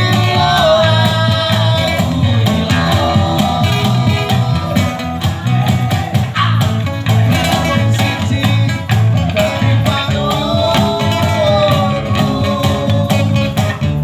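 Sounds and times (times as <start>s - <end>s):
man singing: 0.0s - 13.7s
cajon beat: 0.0s - 14.0s
electric guitar: 0.0s - 14.0s
strummed acoustic guitar: 0.0s - 14.0s.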